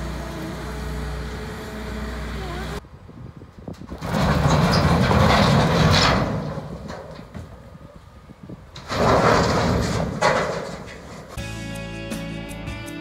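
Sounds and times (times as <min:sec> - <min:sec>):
boulders tumbling from truck bed: 0:03.7 - 0:07.8, 0:08.6 - 0:11.4.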